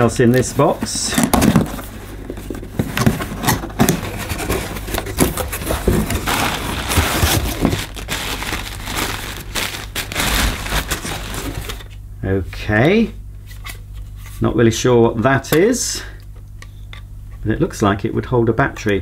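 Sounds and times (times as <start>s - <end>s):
cardboard packaging being handled: 0.0s - 11.9s
plastic wrapping crinkling: 1.3s - 12.0s.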